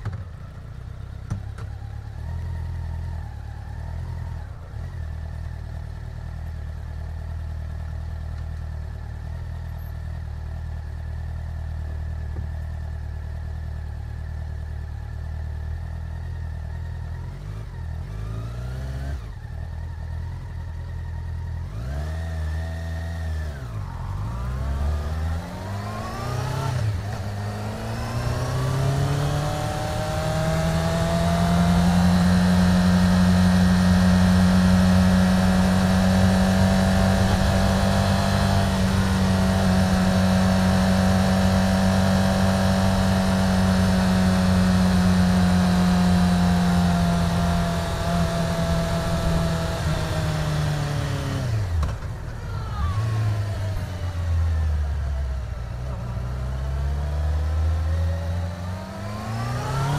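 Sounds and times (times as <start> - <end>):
wind and road noise: 0.0 - 59.9
motorcycle engine revving: 16.6 - 59.9.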